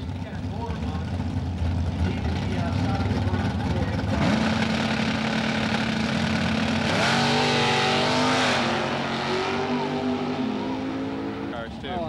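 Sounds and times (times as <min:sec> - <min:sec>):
drag racing cars accelerating: 0:00.0 - 0:12.0.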